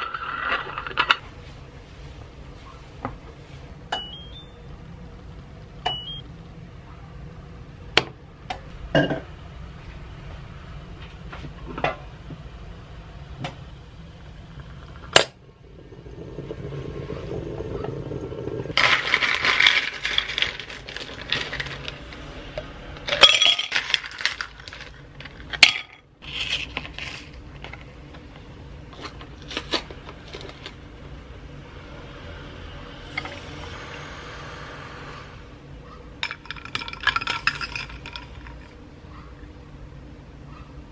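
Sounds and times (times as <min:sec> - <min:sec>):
plastic bag crinkling: 0:18.7 - 0:22.1
ice clattering into glass: 0:18.8 - 0:21.9, 0:23.1 - 0:25.0, 0:36.2 - 0:38.7.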